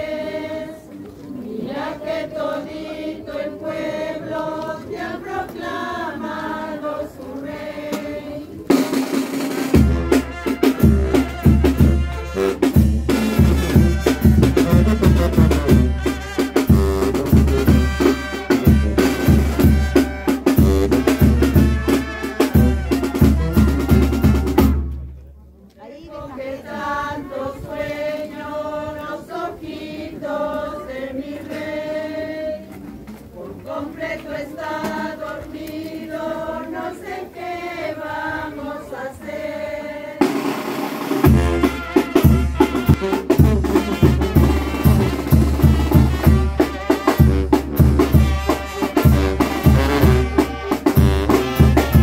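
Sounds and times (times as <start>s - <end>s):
group singing a carol: 0.0s - 12.1s, 25.9s - 43.2s
band with heavy bass drum: 8.7s - 25.0s, 40.2s - 52.0s.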